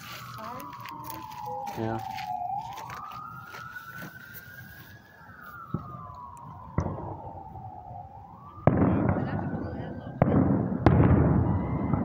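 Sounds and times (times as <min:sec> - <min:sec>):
emergency siren wailing: 0:00.0 - 0:12.0
firework bangs: 0:08.6 - 0:12.0.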